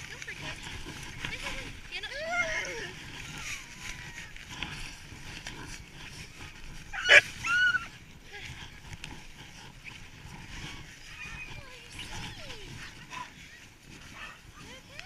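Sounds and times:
dogs whining and yipping: 2.2s - 4.3s, 6.8s - 8.0s
dog barking: 6.9s - 7.8s, 14.1s - 14.7s.

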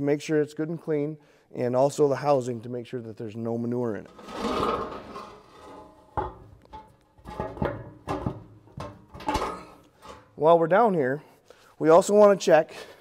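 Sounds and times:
cover scraping on housing: 4.1s - 10.2s
sharp knocks of cover: 6.2s - 10.2s.

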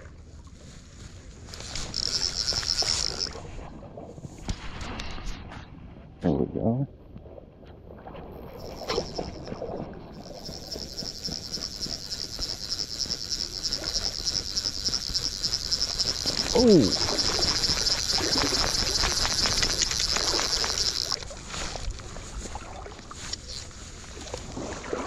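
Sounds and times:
fishing reel drag buzzing: 1.4s - 3.5s, 8.3s - 22.2s, 23.1s - 24.4s.

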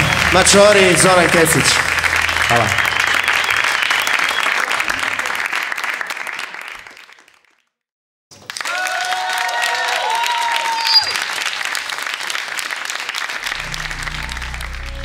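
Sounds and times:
audience applauding: 0.0s - 7.6s, 8.3s - 15.0s
held musical notes: 13.5s - 15.0s.

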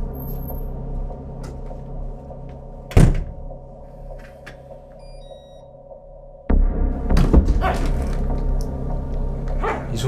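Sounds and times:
low steady drone: 0.0s - 10.0s
door shutting with heavy thud: 2.9s - 3.4s.

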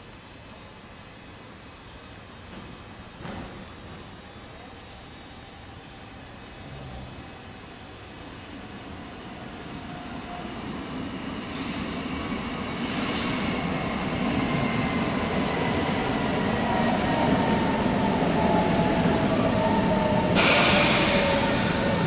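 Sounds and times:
brief hiss: 12.8s - 13.5s
high train squealing: 16.4s - 22.0s.

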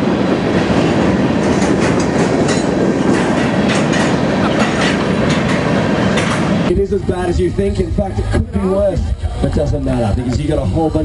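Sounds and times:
train wheels rumbling on rail: 0.0s - 11.0s
wheels clacking: 0.8s - 7.7s.

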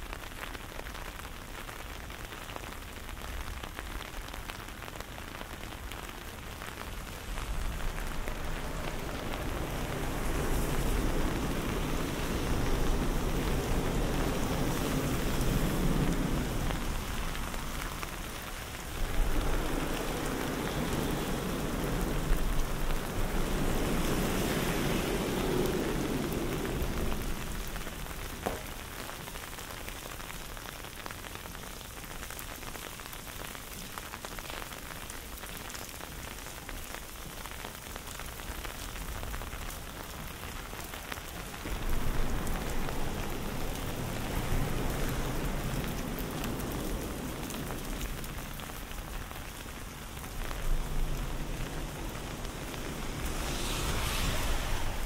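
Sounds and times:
steady rain falling: 0.0s - 55.0s
low rumble: 7.0s - 29.0s, 41.6s - 55.0s.

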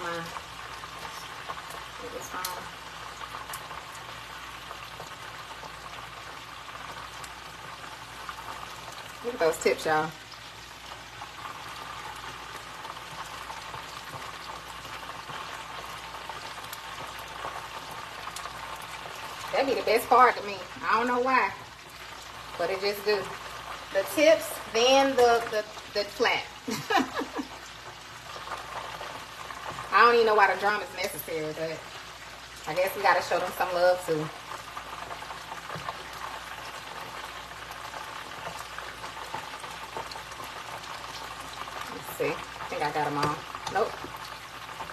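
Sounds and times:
deep-frying oil crackling: 0.0s - 44.9s.

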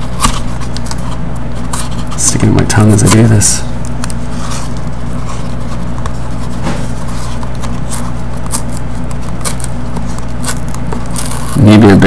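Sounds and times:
loud electrical hum: 0.0s - 12.0s
trading card paper tearing: 4.2s - 12.0s.

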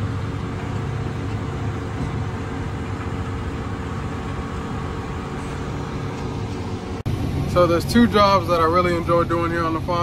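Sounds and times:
tractor engine low hum: 0.0s - 10.0s.

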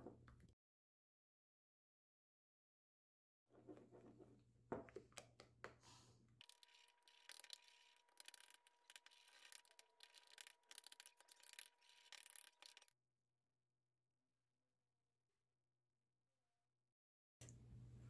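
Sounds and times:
spoon scraping ceramic bowl: 6.4s - 12.9s.

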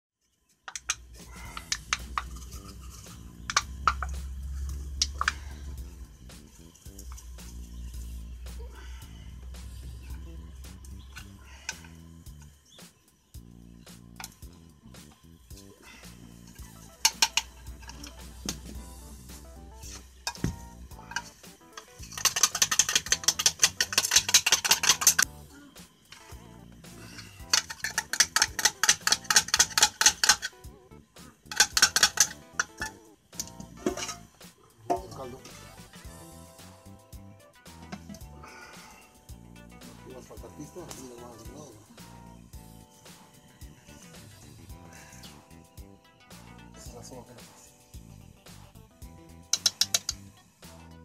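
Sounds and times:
metal cup clinking and scraping: 0.7s - 5.6s, 19.8s - 25.3s, 27.2s - 30.5s, 31.5s - 34.3s
low steady hum: 0.7s - 12.7s
light background music: 0.8s - 51.0s.

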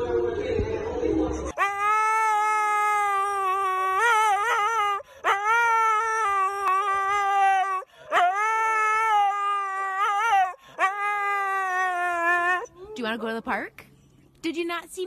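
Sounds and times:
husky howling: 1.6s - 13.3s.

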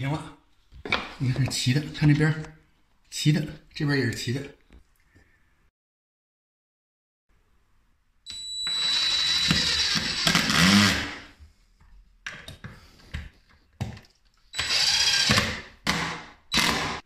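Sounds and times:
power drill driving a screw: 8.3s - 11.3s, 14.6s - 17.0s.

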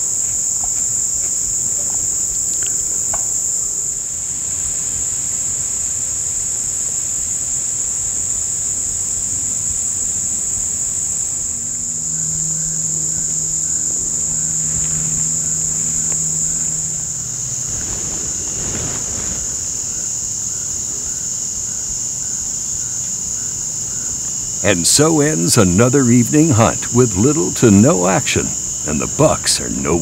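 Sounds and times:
insects droning: 0.0s - 30.0s
low hum: 11.2s - 20.0s.

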